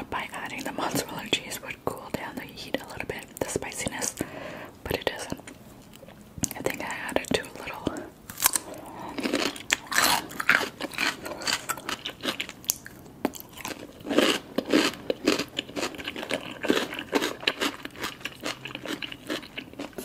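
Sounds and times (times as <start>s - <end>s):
cucumber crunching: 7.4s - 20.0s.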